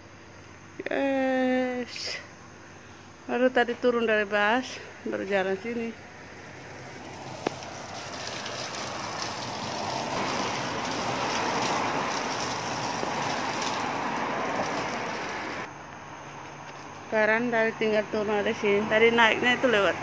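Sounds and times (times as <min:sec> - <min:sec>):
vehicle passing on road: 0:05.7 - 0:17.1.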